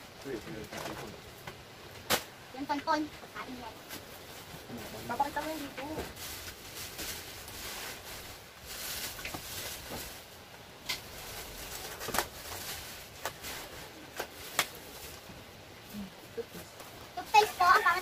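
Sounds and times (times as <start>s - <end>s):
packaging rustling: 11.0s - 15.3s.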